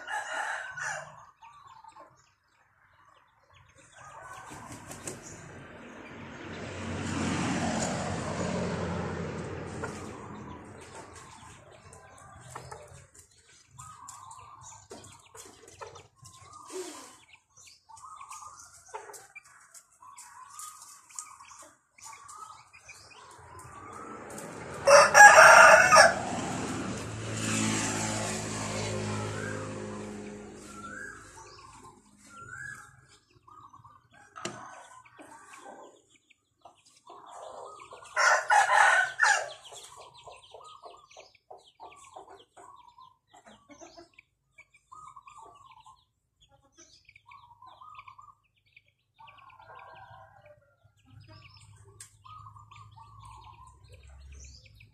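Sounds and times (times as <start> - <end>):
rooster crowing: 0.0 - 1.3, 24.8 - 26.4, 38.2 - 39.6
small birds chirping: 1.2 - 6.2, 9.7 - 24.6, 28.7 - 38.2, 39.2 - 54.9.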